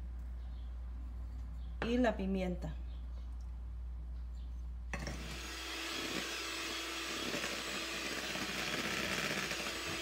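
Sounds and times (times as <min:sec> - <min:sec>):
electric hand mixer whirring: 0:05.0 - 0:10.0.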